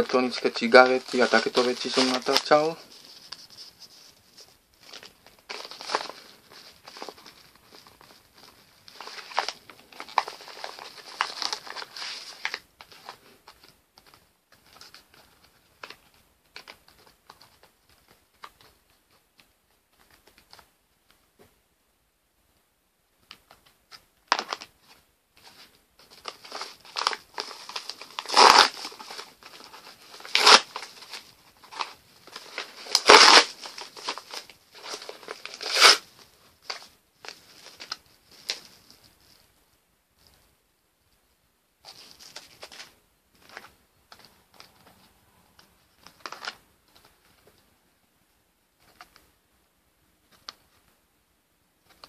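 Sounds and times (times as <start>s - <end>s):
packaging crinkling and tearing: 0.0s - 3.5s, 4.8s - 18.6s, 24.3s - 38.8s, 46.1s - 46.6s
packaging rustling: 0.0s - 19.2s, 23.5s - 39.1s, 41.8s - 44.9s.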